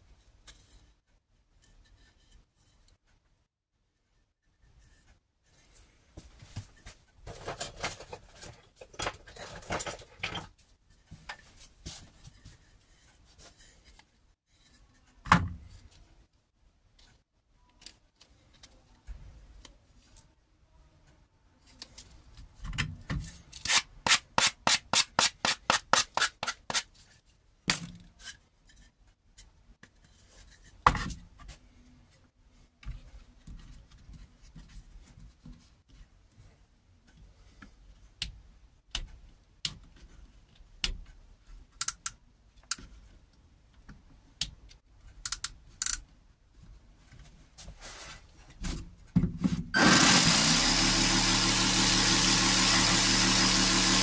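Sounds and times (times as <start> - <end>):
reciprocating saw motor running: 49.8 - 54.0.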